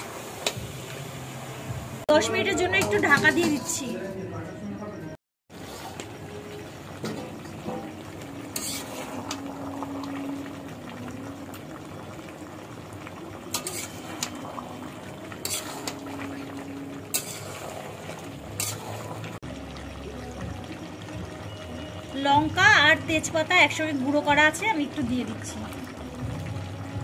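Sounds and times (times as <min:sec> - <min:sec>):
curry bubbling and sizzling: 0:05.5 - 0:27.0
spatula scraping a wok: 0:08.5 - 0:09.4, 0:13.5 - 0:14.5, 0:15.3 - 0:16.2, 0:17.1 - 0:19.2.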